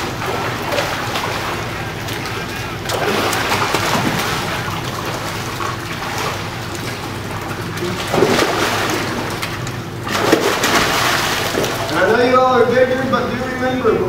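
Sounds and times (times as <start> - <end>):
water sloshing and splashing: 0.0 - 12.3.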